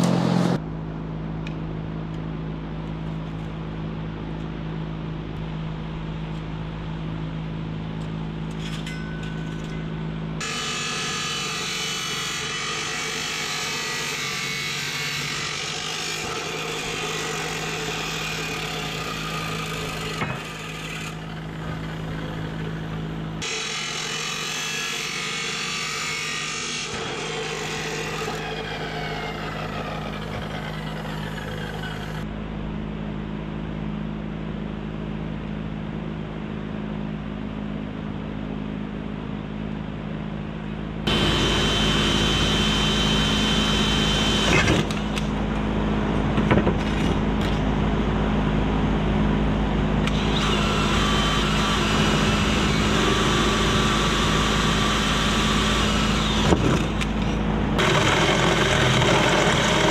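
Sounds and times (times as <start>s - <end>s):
steady low hum: 0.0s - 59.9s
chop saw cutting steel: 10.4s - 32.2s, 41.1s - 45.4s, 50.1s - 59.9s.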